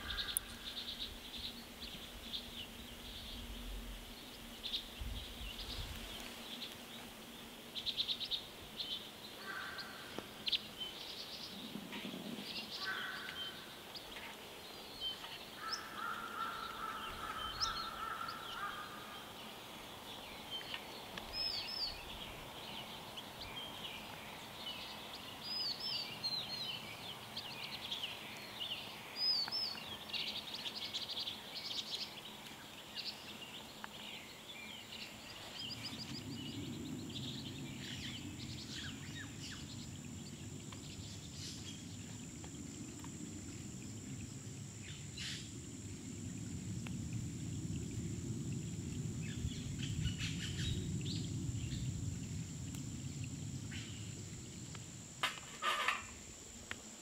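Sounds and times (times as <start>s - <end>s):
small birds chirping: 0.0s - 46.2s
steady low rumble: 35.6s - 55.2s.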